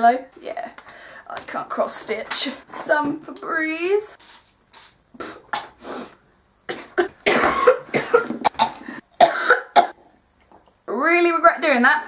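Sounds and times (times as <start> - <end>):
spray can hissing puffs: 4.2 - 5.0
woman coughing harshly: 6.7 - 10.0.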